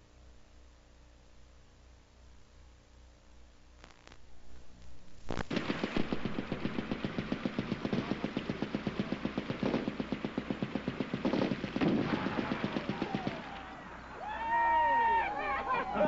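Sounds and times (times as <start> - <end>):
machine guns firing bursts: 5.5 - 14.1.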